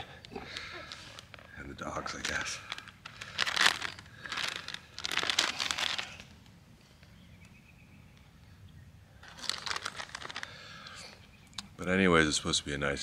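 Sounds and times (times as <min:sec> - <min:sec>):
plastic snack packet crinkling: 0:00.5 - 0:06.4, 0:09.2 - 0:11.0.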